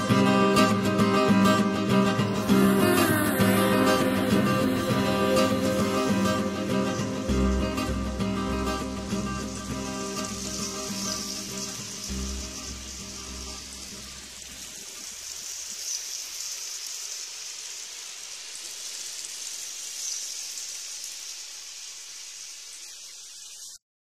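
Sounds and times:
low held tone: 2.4s - 10.3s.

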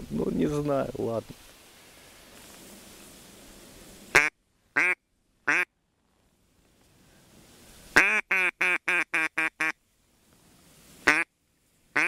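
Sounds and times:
duck quacking: 4.1s - 5.7s, 8.0s - 9.8s, 11.0s - 11.3s.

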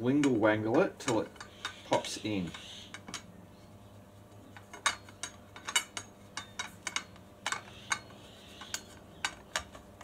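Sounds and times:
metal tubing clinking: 4.6s - 9.8s.

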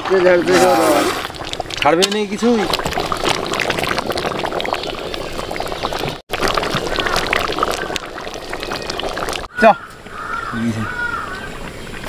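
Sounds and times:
thick curry bubbling in a wok: 1.2s - 9.5s.

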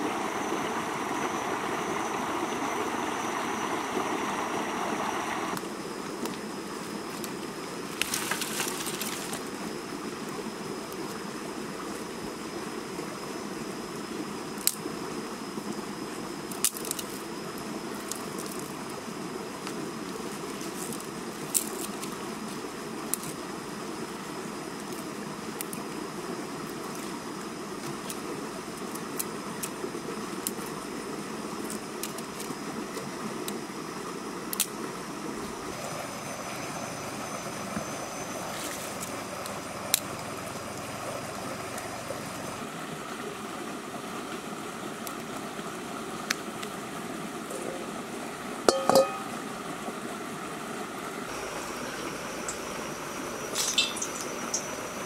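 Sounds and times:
river flowing over rocks: 0.0s - 12.9s, 13.7s - 55.0s
metal wok clanking on stones: 48.7s - 49.4s, 53.6s - 54.7s.

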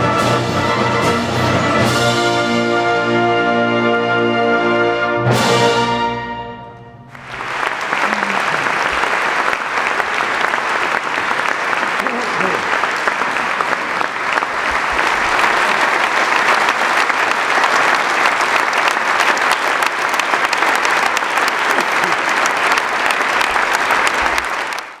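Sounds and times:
large audience applauding: 7.0s - 25.0s.

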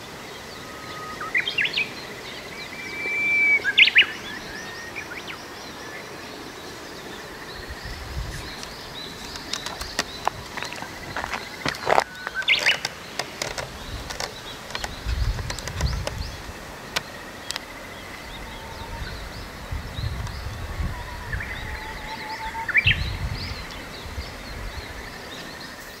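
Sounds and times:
small birds chirping: 0.0s - 26.0s
wind rumble on microphone: 6.8s - 25.8s
sharp clicks: 8.6s - 17.7s.

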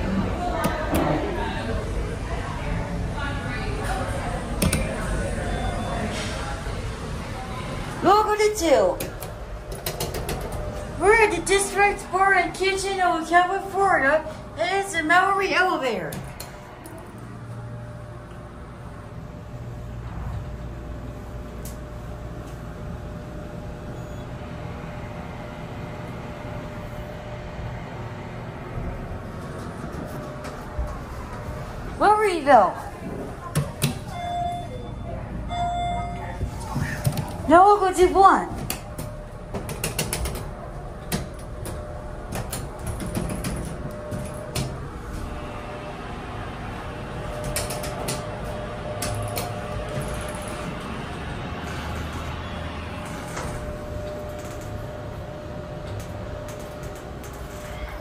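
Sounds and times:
elevator low rumble: 0.0s - 58.0s
faint hum: 0.0s - 58.0s
elevator buttons clicking: 9.0s - 10.8s, 47.3s - 48.3s
elevator doors sliding shut: 38.8s - 58.0s
low elevator rumble: 40.4s - 58.0s.

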